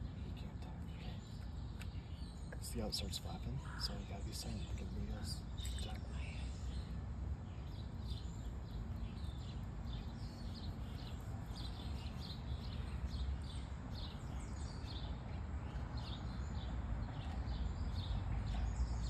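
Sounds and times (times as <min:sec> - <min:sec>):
songbird chirping: 0:00.0 - 0:19.0
steady low rumble: 0:00.0 - 0:19.0.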